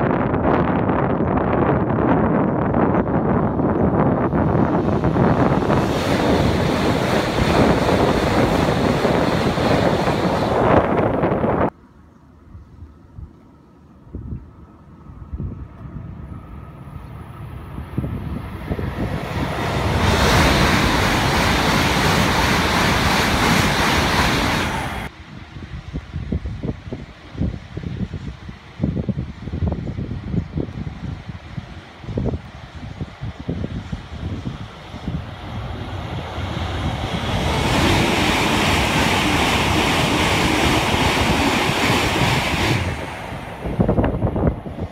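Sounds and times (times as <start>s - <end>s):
train passing at speed: 0.0s - 12.4s, 13.5s - 44.9s.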